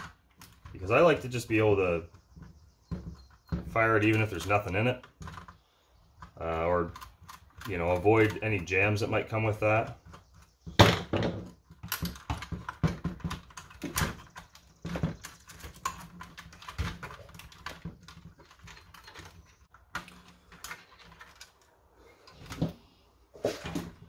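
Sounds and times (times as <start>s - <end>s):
plastic parts clicking and knocking: 0.0s - 22.8s.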